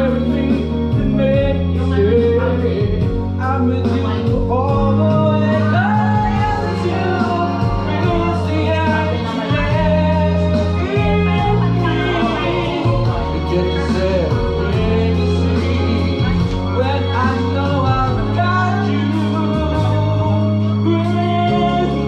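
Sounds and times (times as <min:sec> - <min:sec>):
backing track with bass line: 0:00.0 - 0:22.0
man singing karaoke: 0:00.0 - 0:22.0.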